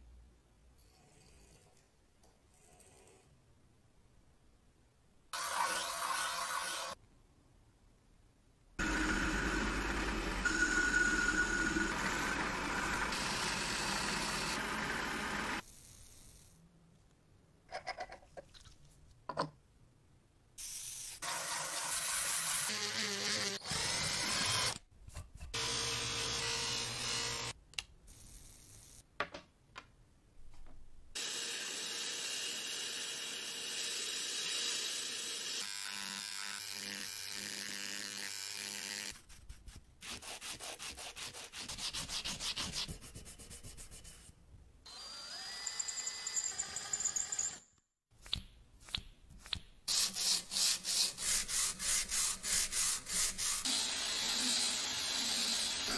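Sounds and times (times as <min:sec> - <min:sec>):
engraving pen buzzing: 0:08.8 - 0:15.6
lathe cutting steel: 0:08.8 - 0:15.6.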